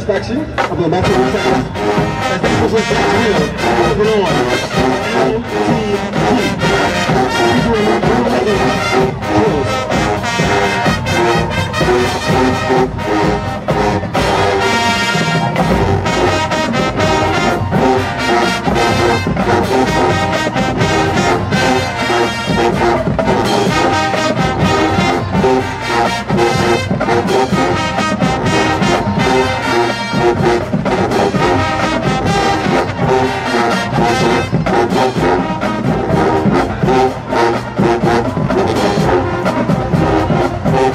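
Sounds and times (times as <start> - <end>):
brass section playing: 0.5 - 40.9
marching drums beat: 0.6 - 40.9.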